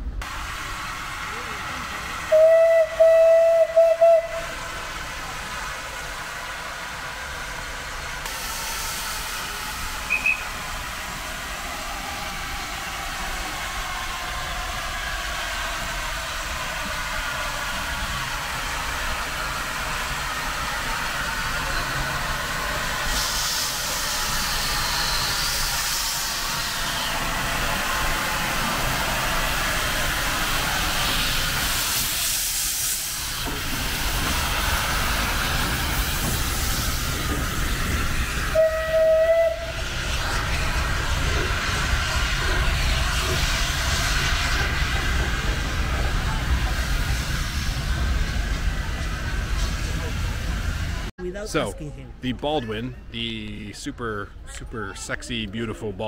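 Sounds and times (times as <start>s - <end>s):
steam locomotive hissing steam: 0.1s - 51.1s
steam whistle blast: 2.2s - 4.6s, 10.0s - 10.6s, 38.5s - 39.9s.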